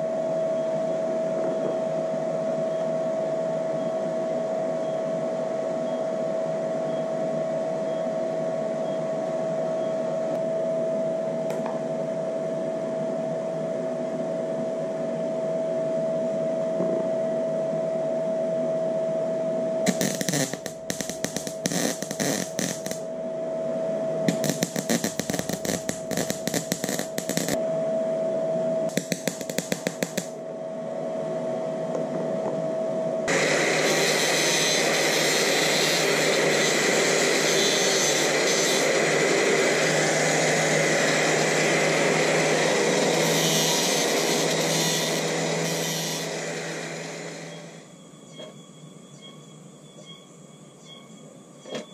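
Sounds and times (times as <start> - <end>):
welder machine hum with whine: 0.0 - 51.9
angle grinder running: 19.9 - 23.0, 24.3 - 27.6, 28.9 - 30.3, 33.3 - 47.8
welding arc crackling: 19.9 - 23.1, 24.3 - 27.6, 28.9 - 30.4, 33.3 - 47.8.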